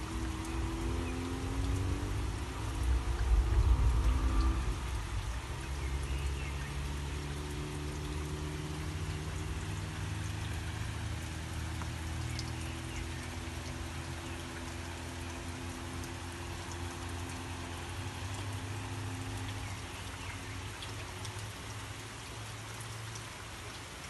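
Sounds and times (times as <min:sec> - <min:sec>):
drips ticking: 0:00.0 - 0:24.0
steady rain: 0:00.0 - 0:24.0
low hum: 0:00.5 - 0:07.3.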